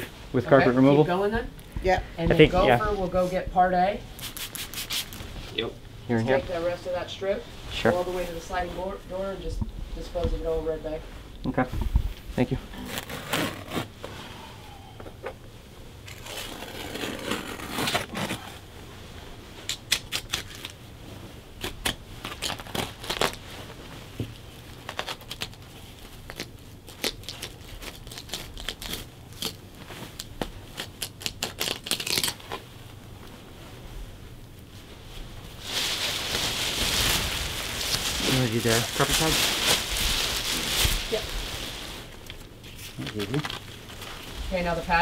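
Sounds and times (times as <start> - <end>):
carpet ripping: 12.8 - 13.9, 16.1 - 18.7, 21.6 - 23.5, 24.8 - 32.7
plastic bag rustling: 34.7 - 45.0.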